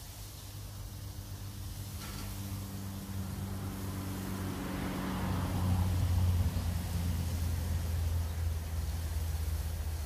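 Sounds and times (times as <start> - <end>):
low engine hum: 0.5 - 10.0.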